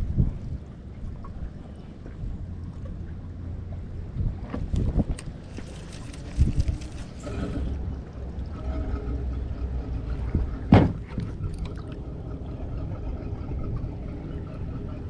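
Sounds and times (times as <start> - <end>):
water sloshing against boat hull: 0.3 - 15.0
camera handling rumble: 4.6 - 7.5
knocks on boat: 10.7 - 11.4.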